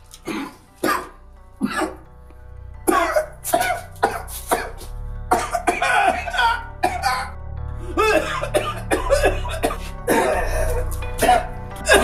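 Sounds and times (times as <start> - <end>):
background music with held tones: 0.0 - 12.0
man coughing: 0.2 - 2.0, 2.9 - 7.4, 8.0 - 12.0.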